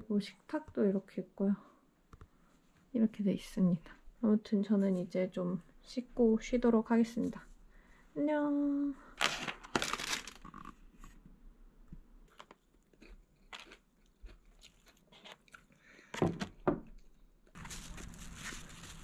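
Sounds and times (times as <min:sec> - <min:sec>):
crunchy chewing: 0:12.3 - 0:15.9.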